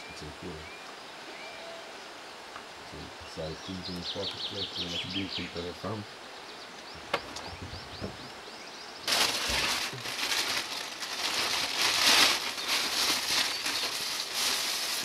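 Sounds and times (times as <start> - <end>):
small bird chirping: 3.0 - 9.1
loud crackling rustle: 9.0 - 15.0.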